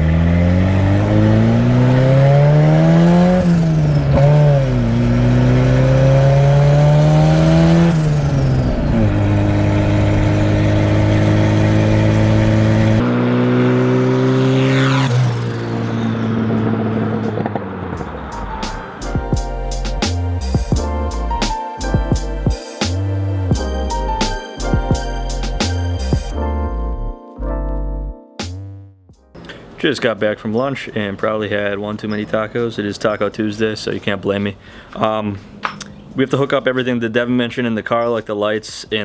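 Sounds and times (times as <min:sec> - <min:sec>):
car engine accelerating: 0:00.0 - 0:22.3.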